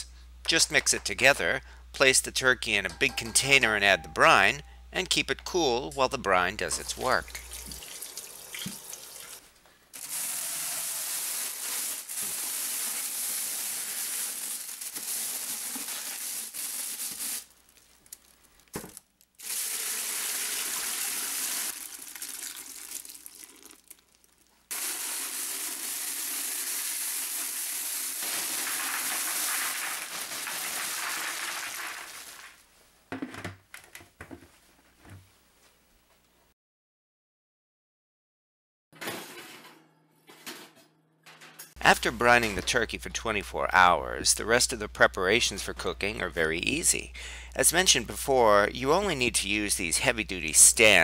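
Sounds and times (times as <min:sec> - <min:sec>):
tap running into a sink: 0:07.3 - 0:09.4
liquid pouring into a bucket: 0:19.4 - 0:32.6.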